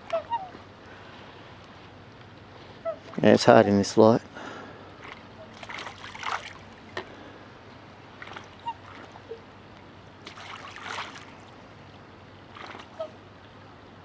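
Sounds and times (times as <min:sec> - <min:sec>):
swans splashing in water: 0:04.9 - 0:07.3, 0:08.0 - 0:09.4, 0:10.1 - 0:13.3.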